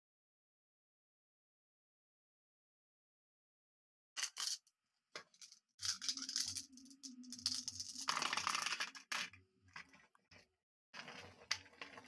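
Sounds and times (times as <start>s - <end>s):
marbles and toy rattling: 4.2s - 9.9s.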